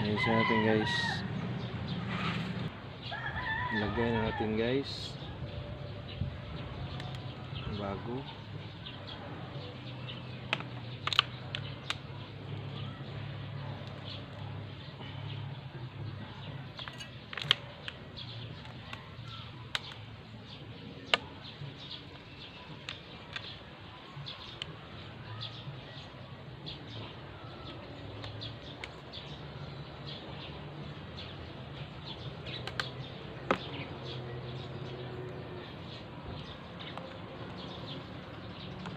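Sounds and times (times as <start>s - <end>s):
clicks of throttle cable handled: 10.5s - 12.0s, 16.7s - 20.0s, 32.4s - 33.8s.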